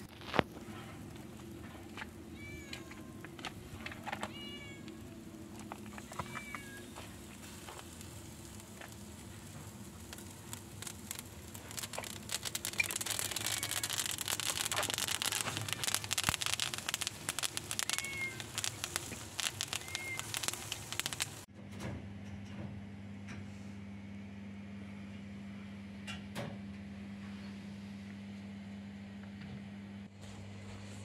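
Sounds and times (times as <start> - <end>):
chicken sizzling on a grill: 0.0 - 21.5
cat meowing: 2.3 - 3.3, 4.0 - 5.2, 6.0 - 7.0, 13.2 - 14.0, 17.6 - 18.5.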